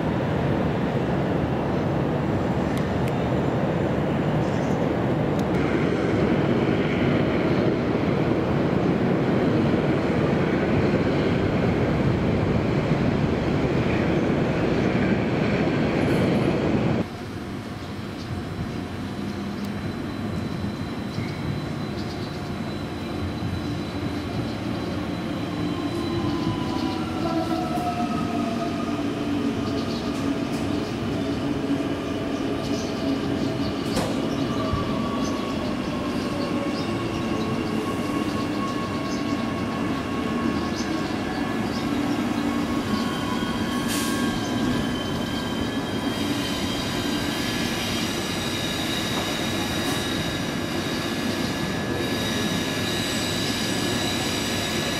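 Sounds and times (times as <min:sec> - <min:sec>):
train rumble: 0:00.0 - 0:54.9
wheel and brake squeals: 0:42.6 - 0:54.9.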